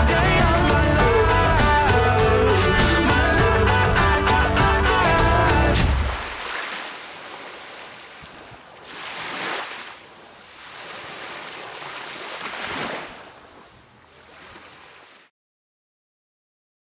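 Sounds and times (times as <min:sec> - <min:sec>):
small waves on a beach: 0:05.9 - 0:15.3.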